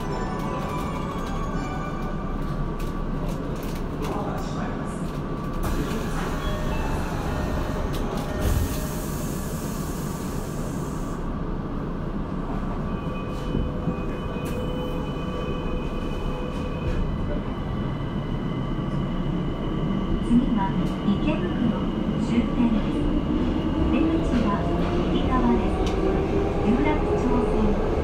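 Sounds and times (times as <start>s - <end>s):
wheels rumbling on rail: 0.0s - 28.0s
hiss: 8.5s - 11.2s.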